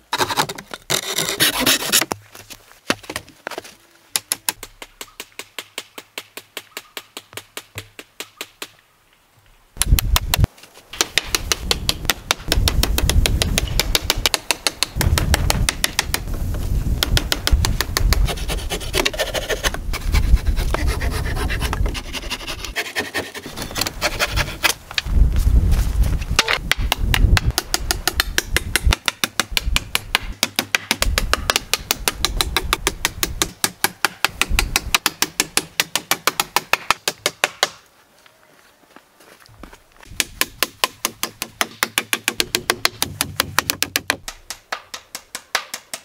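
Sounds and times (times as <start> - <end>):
hammer blows on wooden boards: 9.8 - 16.3, 16.9 - 19.1, 26.4 - 37.8, 40.1 - 46.0.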